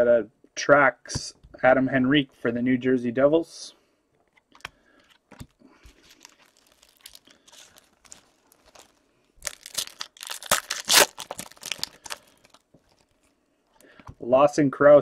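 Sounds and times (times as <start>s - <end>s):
card pack wrapper tearing: 5.3s - 13.3s.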